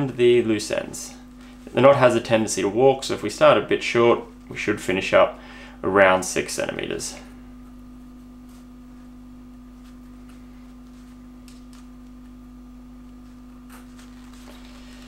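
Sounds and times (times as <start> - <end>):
steady low humming tone: 0.0 - 15.0
shock cord rustling: 7.6 - 12.4, 13.1 - 15.0.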